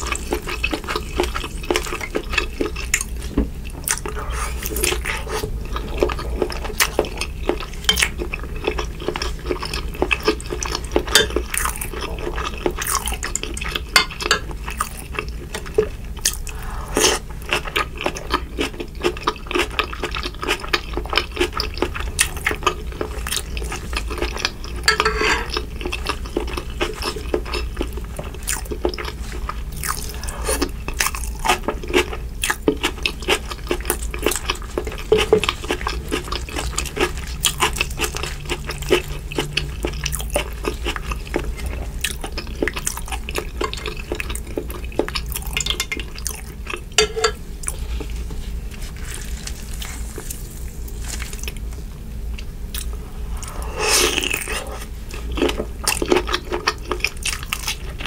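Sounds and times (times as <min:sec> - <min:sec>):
chewing: 0:00.0 - 0:58.0
metal spoon scraping glass dish: 0:24.9 - 0:25.5.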